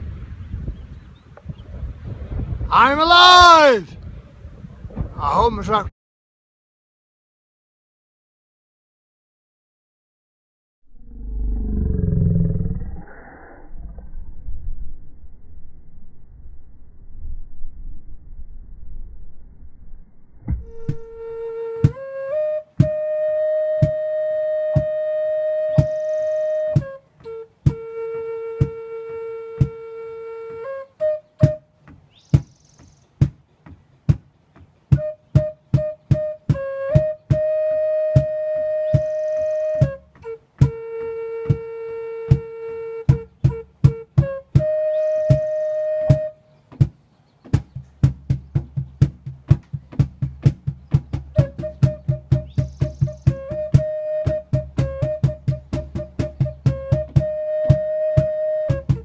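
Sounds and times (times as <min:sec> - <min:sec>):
low accompaniment: 0:13.7 - 0:32.1, 0:33.2 - 0:59.0
wooden flute long notes: 0:20.6 - 0:32.0, 0:34.9 - 0:46.9, 0:51.1 - 0:59.0
steady sharp taps: 0:31.8 - 0:34.8.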